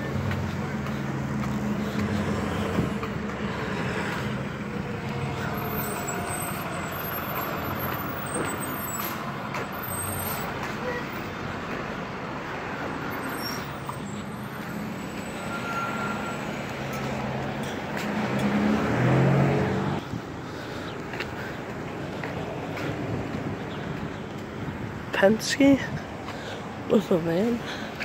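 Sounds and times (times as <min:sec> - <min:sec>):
bus engine driving by: 0:00.0 - 0:28.0
road traffic passing: 0:00.0 - 0:28.0.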